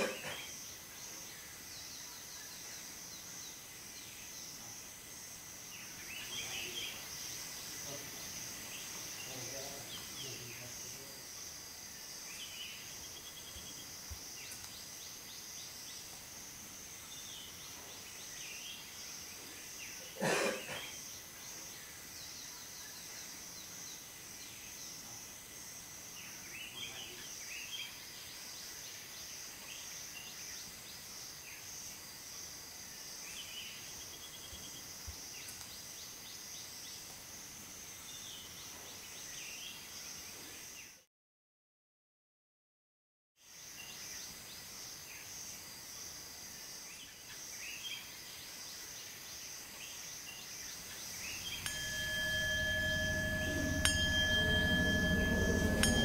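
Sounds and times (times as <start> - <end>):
insects droning: 0.0 - 40.9, 43.4 - 56.0
bird chirps: 50.8 - 56.0.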